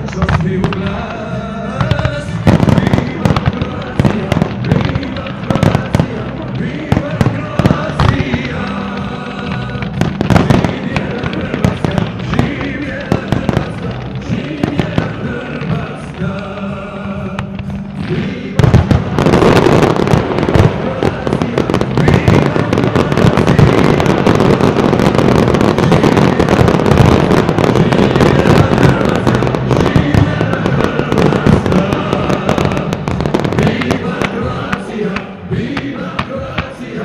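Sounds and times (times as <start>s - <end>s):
fireworks bangs and crackles: 0.0s - 37.0s
music: 0.0s - 37.0s.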